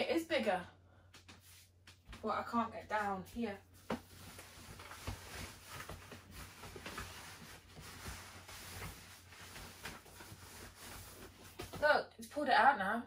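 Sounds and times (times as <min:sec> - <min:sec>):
plastic sheet rustling: 0:03.0 - 0:11.8.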